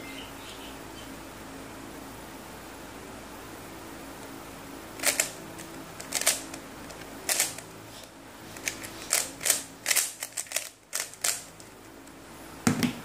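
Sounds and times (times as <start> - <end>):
speed cube plastic layers clacking: 5.0 - 5.4, 6.0 - 6.4, 7.2 - 7.6, 8.6 - 11.5.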